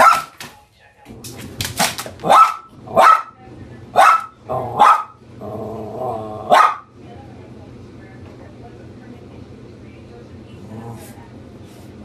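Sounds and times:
dog barking excitedly: 0:00.0 - 0:00.4, 0:02.2 - 0:05.2, 0:06.4 - 0:06.9
washing machine humming: 0:00.0 - 0:12.0
dog growling: 0:04.4 - 0:06.6, 0:10.5 - 0:11.2.

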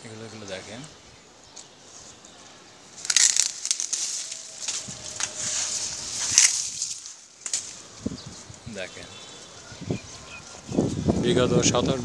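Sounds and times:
dry leaves rustling and crackling: 0:01.8 - 0:08.7.

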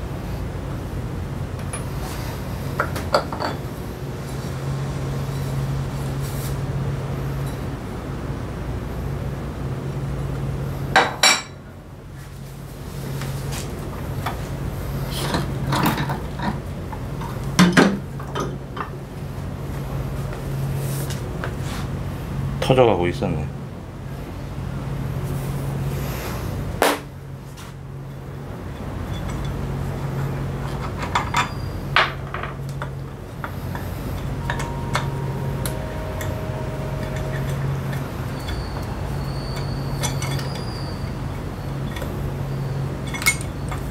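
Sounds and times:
steady low hum: 0:00.0 - 0:43.9
metal parts and tools clanking: 0:02.8 - 0:03.7, 0:28.6 - 0:43.9.

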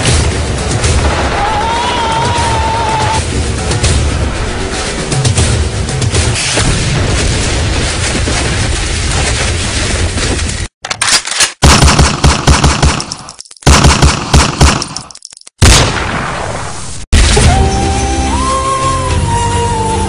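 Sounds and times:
dense battle noise: 0:00.0 - 0:10.6
machine-gun fire: 0:11.6 - 0:16.2.

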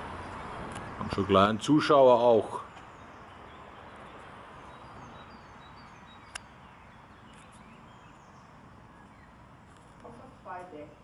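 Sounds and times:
small birds chirping: 0:00.1 - 0:11.0
sharp click: 0:06.3 - 0:06.5.

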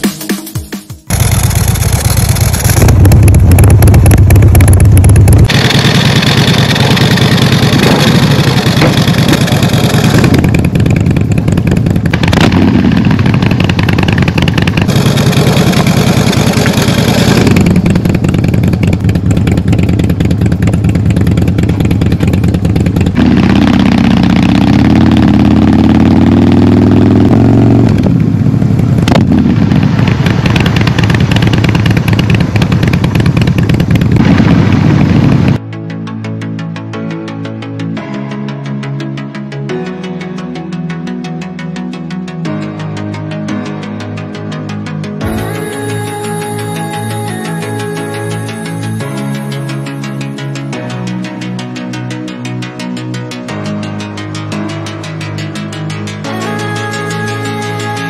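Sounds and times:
motorcycle engine running loud: 0:01.1 - 0:35.7, 0:45.2 - 0:58.0.

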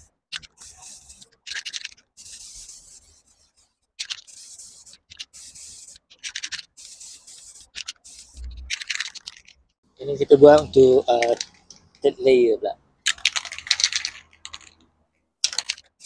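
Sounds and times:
spray paint can hissing: 0:00.0 - 0:09.4.

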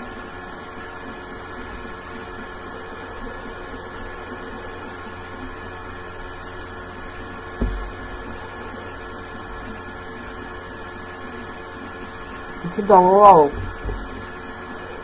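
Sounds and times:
electrical hum with tones: 0:00.0 - 0:15.0
short low thump: 0:07.6 - 0:08.3.

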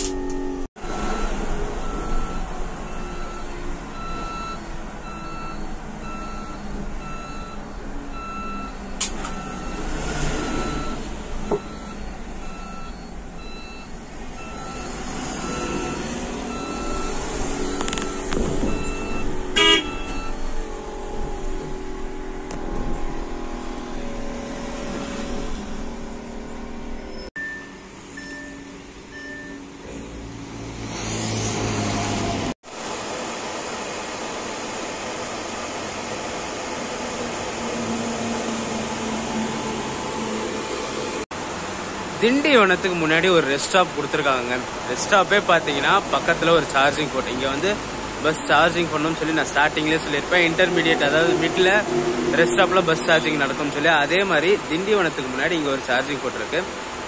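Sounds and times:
bus drive hum and road noise: 0:00.0 - 0:57.0
short electronic warning beep: 0:10.6 - 0:20.5, 0:27.1 - 0:29.7
short high beep: 0:27.1 - 0:29.6.

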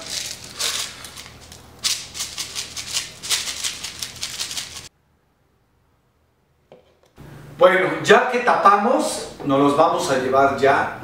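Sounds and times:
salt rattling in shaker: 0:00.0 - 0:04.9.

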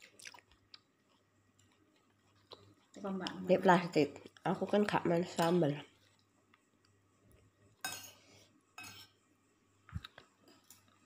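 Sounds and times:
spoon clinking on a plate: 0:07.8 - 0:08.2, 0:08.8 - 0:09.2
tableware scraping rustles: 0:07.8 - 0:08.2, 0:08.8 - 0:09.2.

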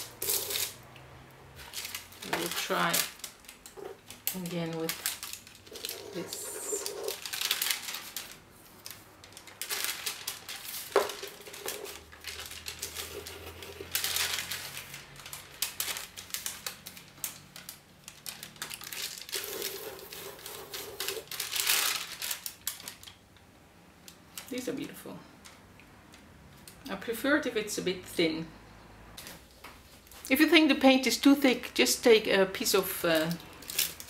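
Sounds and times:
paper rustling and crinkling: 0:00.0 - 0:00.8, 0:01.6 - 0:23.2, 0:33.0 - 0:34.0
pen scratching on paper: 0:05.9 - 0:07.2, 0:19.4 - 0:21.2.

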